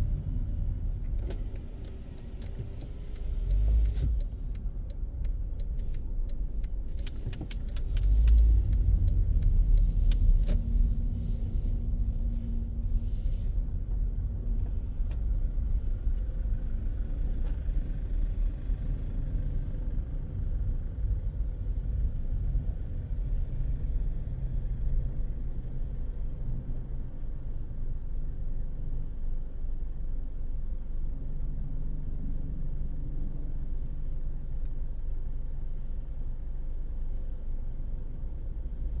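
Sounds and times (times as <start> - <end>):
car engine and road rumble: 0.0 - 39.0
sharp clicks and knocks: 1.2 - 10.6.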